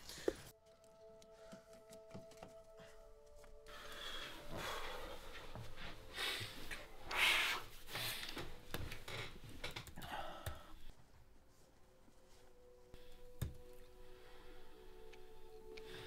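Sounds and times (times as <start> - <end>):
man breathing heavily: 2.6 - 8.6.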